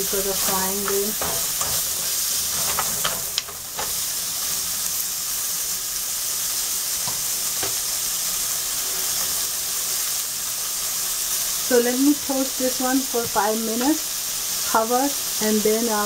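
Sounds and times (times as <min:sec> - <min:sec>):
onions sizzling in a frying pan: 0:00.0 - 0:16.0
spatula clicking and scraping: 0:00.1 - 0:04.0.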